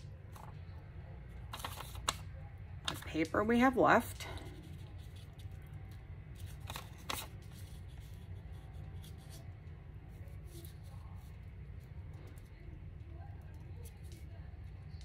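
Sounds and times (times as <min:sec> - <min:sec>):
paper rustling and crinkling: 0:01.4 - 0:02.2, 0:02.8 - 0:03.3, 0:04.3 - 0:09.5, 0:10.1 - 0:11.5
sharp paper crackles: 0:01.4 - 0:02.2, 0:04.4 - 0:09.4.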